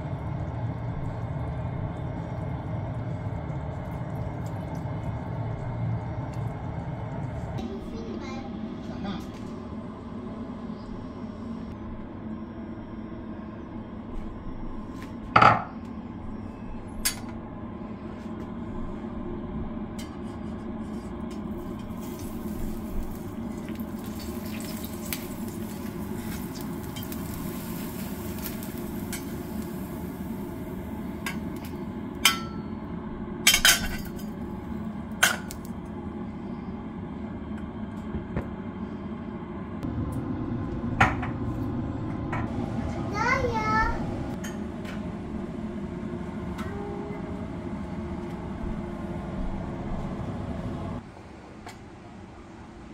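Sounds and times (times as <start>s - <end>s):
steady low hum: 0.0s - 52.9s
metal utensils clinking on cookware: 33.5s - 34.2s.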